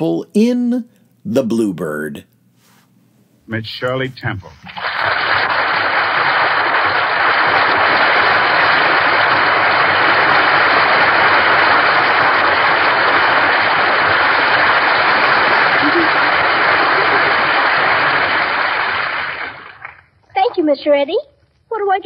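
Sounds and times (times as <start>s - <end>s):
audience applauding: 4.7s - 20.1s.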